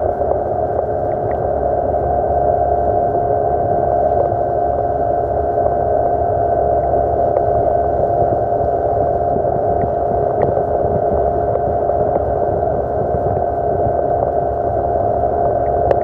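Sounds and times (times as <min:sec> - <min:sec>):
outboard motor running: 0:00.0 - 0:16.0.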